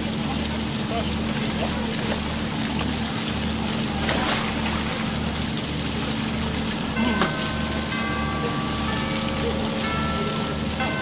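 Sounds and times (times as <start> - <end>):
fountain jets splashing: 0.0 - 11.0
held music notes: 6.1 - 11.0.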